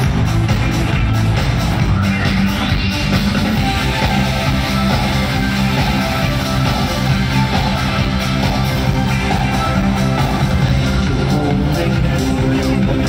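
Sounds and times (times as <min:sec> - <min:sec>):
electric guitar: 0:00.0 - 0:13.0
pop-rock band music: 0:00.0 - 0:13.0.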